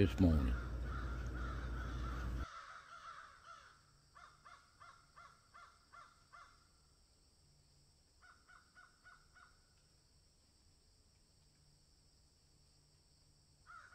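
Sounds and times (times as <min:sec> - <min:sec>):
faint bird calls: 0:00.0 - 0:06.9, 0:08.2 - 0:09.9, 0:13.6 - 0:13.9.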